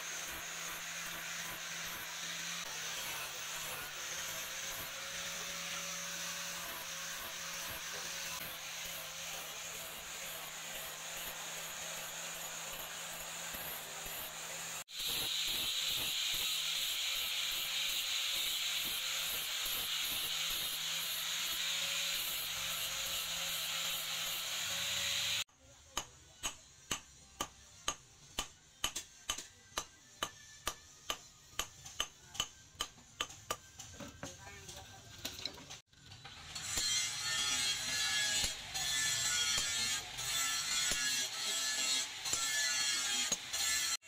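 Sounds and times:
angle grinder grinding steel: 0:00.0 - 0:25.5, 0:35.6 - 0:44.0
hammer striking hot metal on anvil: 0:25.9 - 0:33.8, 0:36.7 - 0:43.9.

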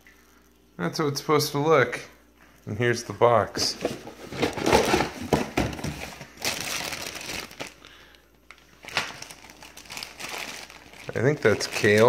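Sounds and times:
plastic and cardboard rustling: 0:03.5 - 0:12.0.

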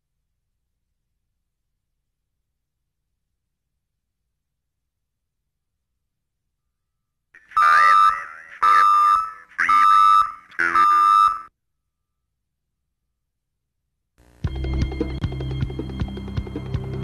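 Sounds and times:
loud electronic beeps: 0:07.6 - 0:11.5.

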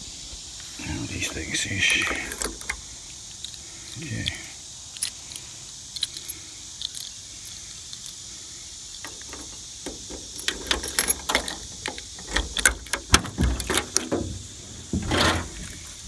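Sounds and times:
keys jangling: 0:01.9 - 0:02.8, 0:05.0 - 0:08.2, 0:08.9 - 0:14.1
key clicking in lock: 0:02.0 - 0:02.8, 0:09.0 - 0:14.2.

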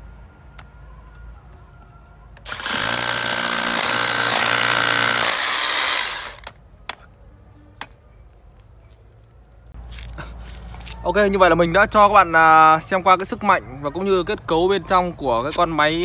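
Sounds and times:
rotary hammer drilling into masonry: 0:02.4 - 0:06.5.

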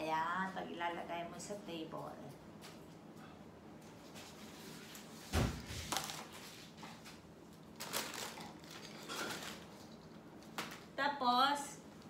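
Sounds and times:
heavy thump of figures set down: 0:05.3 - 0:05.7.

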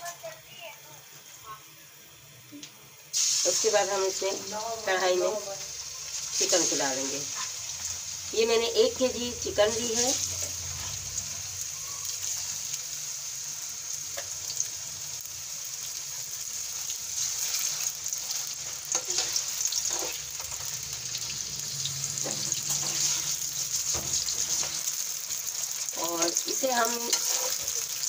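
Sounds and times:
chicken sizzling in hot oil: 0:03.0 - 0:28.0
metal spoon scraping a pan: 0:17.2 - 0:21.4, 0:22.1 - 0:28.0.

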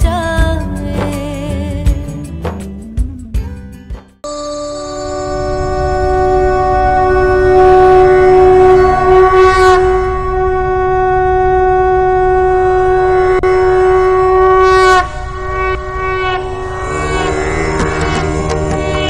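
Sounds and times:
conch shell blown: 0:04.2 - 0:19.0
low rumble: 0:05.2 - 0:19.0.

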